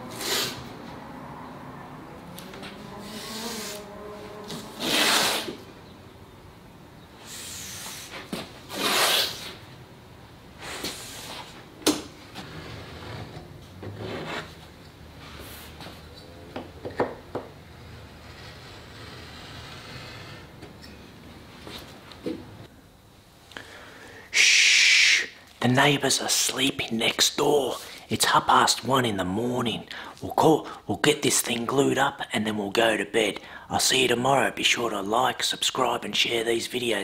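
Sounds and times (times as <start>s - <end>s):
tape ripping off roll: 2.5s - 5.6s, 8.0s - 9.6s.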